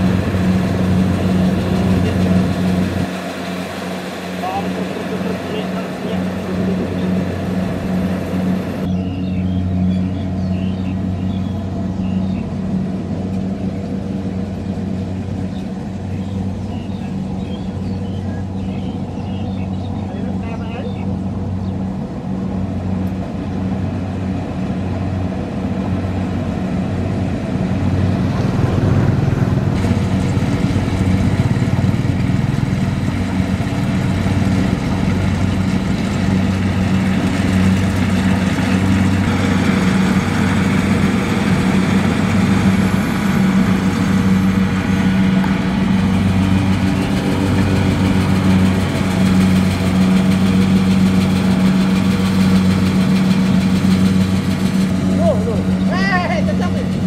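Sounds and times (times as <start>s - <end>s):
rushing threshing machinery: 0.0s - 8.9s, 22.4s - 57.0s
combine harvester engine drone: 0.0s - 57.0s.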